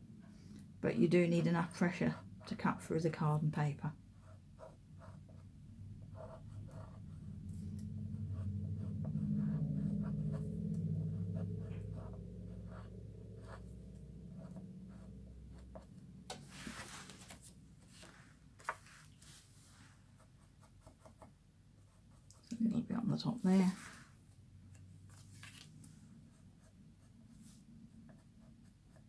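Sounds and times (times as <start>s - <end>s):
low hum: 5.0s - 17.0s.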